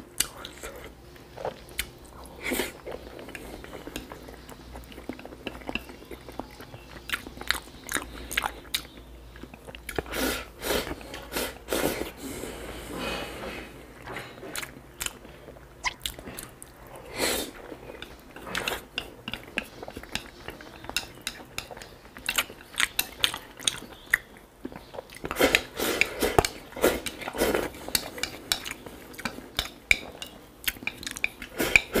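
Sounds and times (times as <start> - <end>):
chewing: 0.2 - 10.2, 14.0 - 32.0
chopsticks clicking on bowl: 27.9 - 31.9.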